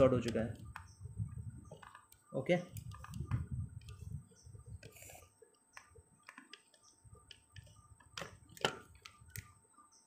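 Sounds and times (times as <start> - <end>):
test probes clicking on circuit board: 0.0 - 1.0, 1.7 - 9.6.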